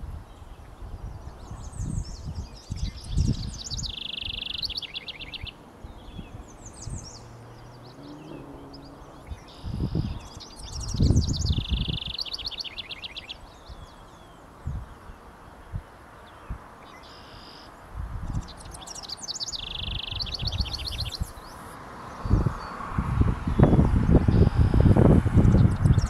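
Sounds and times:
wren singing with fast trill: 0:01.6 - 0:14.1, 0:16.9 - 0:21.7, 0:23.5 - 0:26.0.

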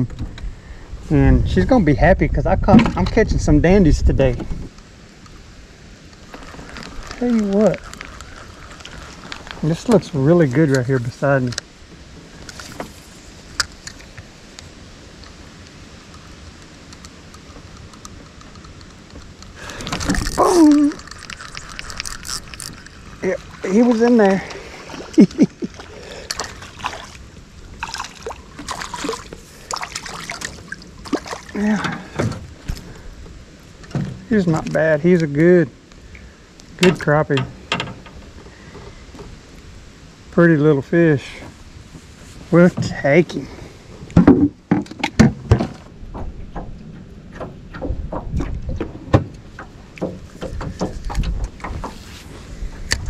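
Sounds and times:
wind on microphone: 0:00.0 - 0:04.8, 0:45.4 - 0:53.0
gear clicking in metal boat: 0:16.9 - 0:23.3, 0:44.8 - 0:53.0
fish splashing at water surface: 0:19.6 - 0:27.2, 0:27.8 - 0:31.6.

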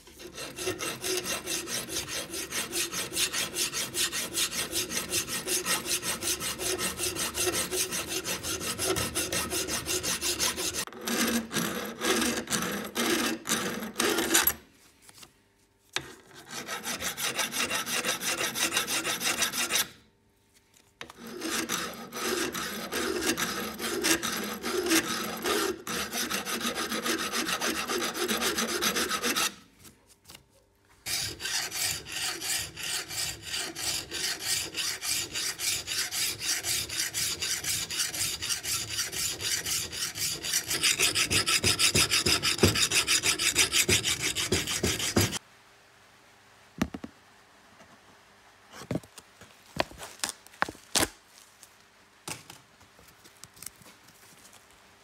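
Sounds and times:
file scraping steel: 0:00.0 - 0:14.6, 0:16.0 - 0:20.0, 0:21.0 - 0:29.6, 0:31.0 - 0:45.4.

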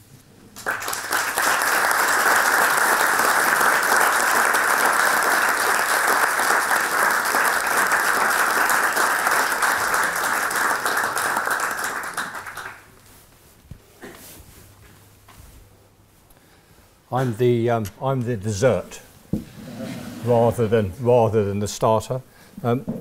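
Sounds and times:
audience applauding: 0:00.6 - 0:12.9.

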